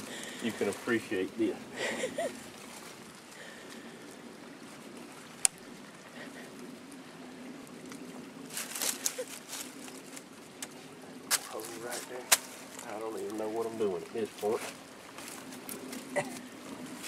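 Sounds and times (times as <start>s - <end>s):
dry leaves and sticks crackling: 1.7s - 17.0s
stick snapping: 12.3s - 12.6s.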